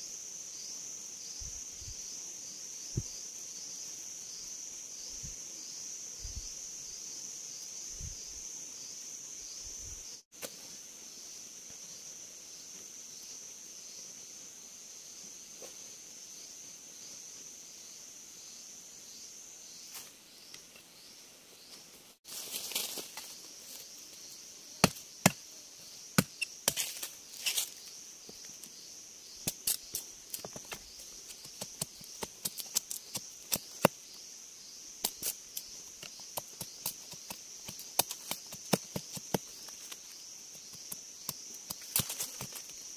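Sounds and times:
insects droning: 0:00.0 - 0:42.9
machete chopping wood: 0:24.8 - 0:25.4, 0:26.2 - 0:26.9.

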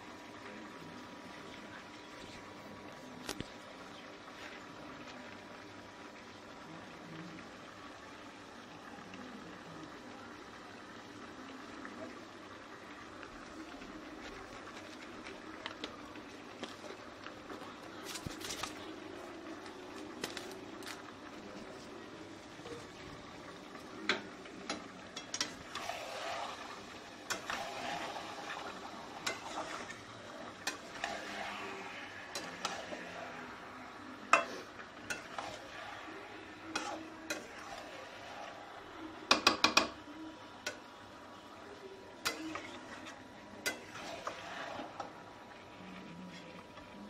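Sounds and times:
faint sizzle: 0:00.0 - 0:47.0
spatula scraping a pan: 0:25.2 - 0:33.6, 0:34.3 - 0:39.4, 0:42.2 - 0:45.2
spatula knocking on a pan: 0:39.3 - 0:40.0.

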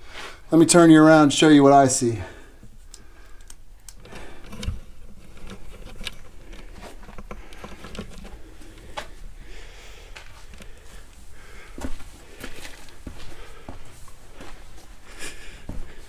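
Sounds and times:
footsteps on loose rock: 0:10.1 - 0:15.0.

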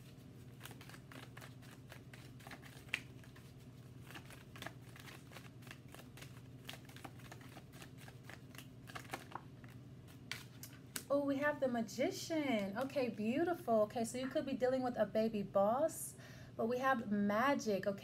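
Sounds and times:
cards being shuffled: 0:00.0 - 0:11.1.

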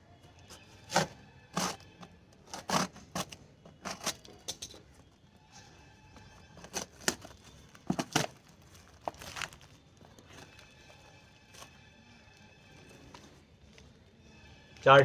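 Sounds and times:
packaging crinkling and tearing: 0:06.6 - 0:14.0
packaging rustling: 0:06.6 - 0:14.0.

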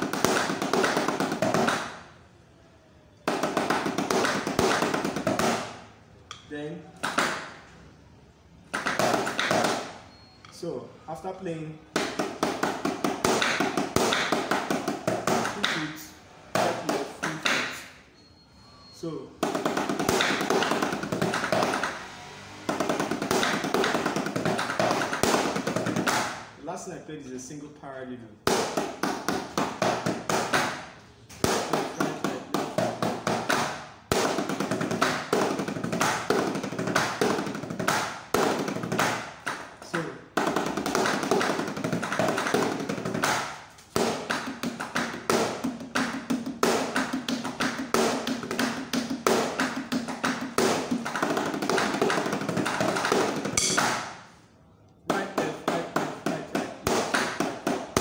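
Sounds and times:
drumsticks on rubber practice pads: 0:11.9 - 0:17.9, 0:19.4 - 0:22.0, 0:22.7 - 0:26.4, 0:28.5 - 0:54.4.

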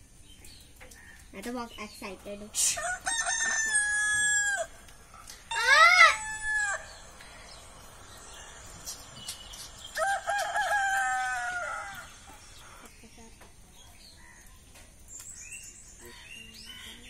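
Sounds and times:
rooster crowing: 0:02.8 - 0:04.8, 0:05.5 - 0:07.6, 0:09.8 - 0:12.9.

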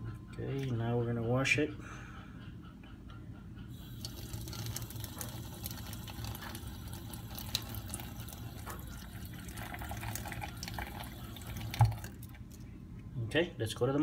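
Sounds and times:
faucet stream splashing in sink: 0:03.8 - 0:12.3.

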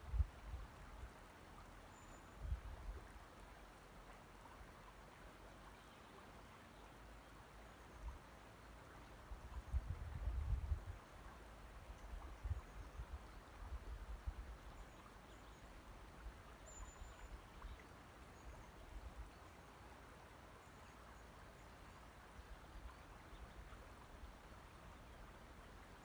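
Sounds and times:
wind buffeting microphone: 0:09.7 - 0:11.0.

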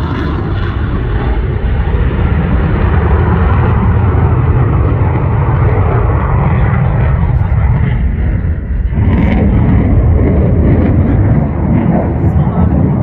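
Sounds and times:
jet engines rumbling in flight: 0:00.0 - 0:13.0.

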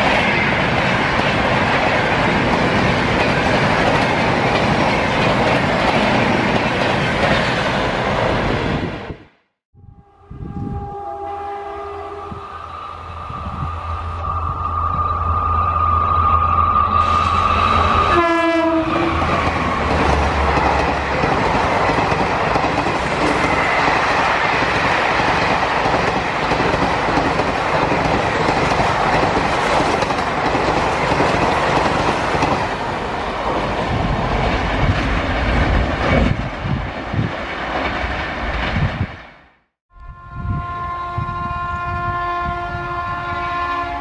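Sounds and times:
train rushing on rails: 0:00.0 - 0:44.0
train horn blast: 0:09.8 - 0:19.3, 0:40.0 - 0:44.0.

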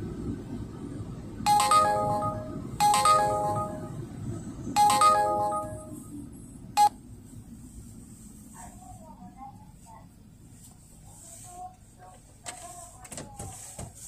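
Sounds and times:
low steady rumble: 0:00.0 - 0:12.4
electronic chime jingle: 0:01.5 - 0:04.1, 0:04.8 - 0:06.0.

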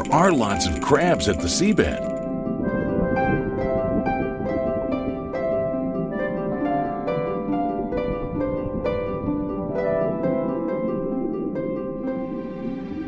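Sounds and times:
plucked string melody: 0:00.0 - 0:13.0.

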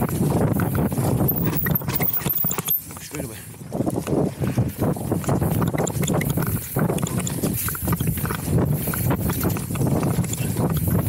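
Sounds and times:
bike frame and chain knocking: 0:00.8 - 0:03.1, 0:05.1 - 0:11.0.

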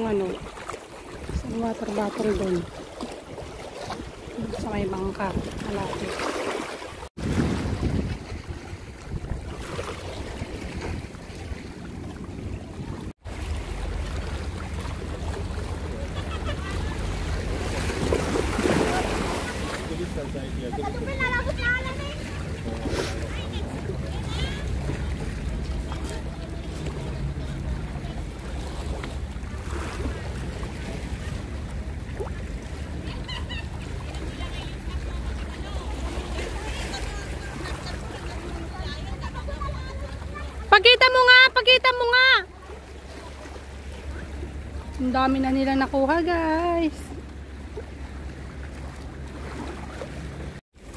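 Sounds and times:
wind rumbling on microphone: 0:00.0 - 0:06.2, 0:06.9 - 0:19.7
sea water lapping: 0:00.0 - 0:50.9.

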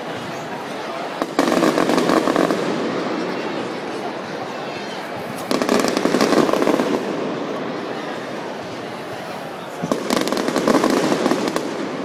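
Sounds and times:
crowd noise: 0:00.0 - 0:12.0
firecrackers crackling bangs: 0:01.0 - 0:03.7, 0:05.2 - 0:07.7, 0:08.6 - 0:12.0.

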